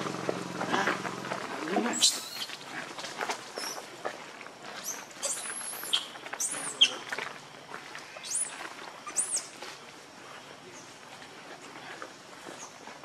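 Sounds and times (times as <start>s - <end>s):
baby monkey squealing cries: 1.9s - 2.5s.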